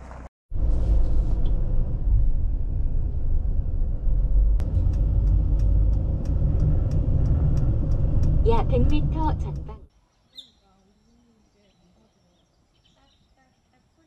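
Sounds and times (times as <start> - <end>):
road and engine rumble: 0.0 - 9.9.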